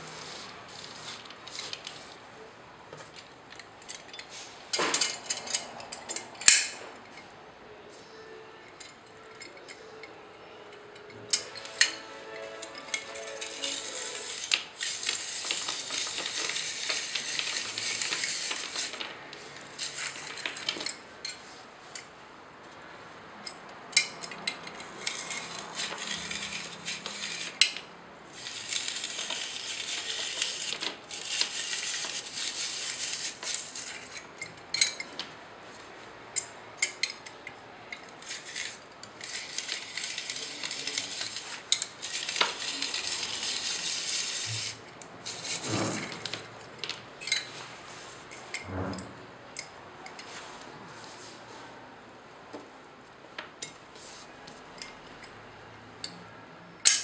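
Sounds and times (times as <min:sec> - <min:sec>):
grater rasping through carrot: 0:13.1 - 0:18.9, 0:24.9 - 0:27.6, 0:28.4 - 0:33.9.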